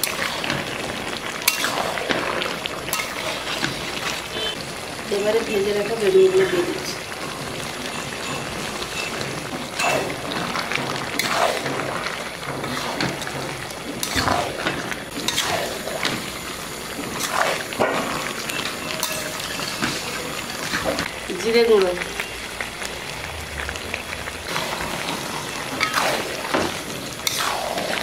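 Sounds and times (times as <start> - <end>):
curry bubbling: 0.0 - 28.0
spatula scraping a pan: 15.2 - 16.2.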